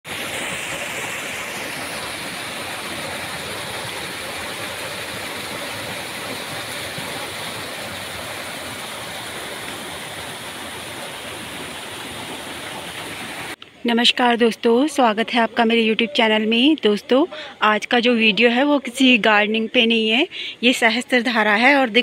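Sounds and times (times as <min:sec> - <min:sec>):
waterfall rushing: 0:00.0 - 0:13.6.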